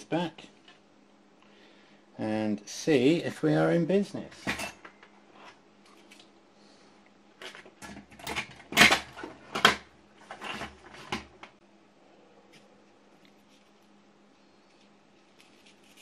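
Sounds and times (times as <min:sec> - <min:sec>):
faint steady hum: 0:00.0 - 0:16.0
tools clattering on a workbench: 0:04.3 - 0:05.6, 0:07.4 - 0:11.4.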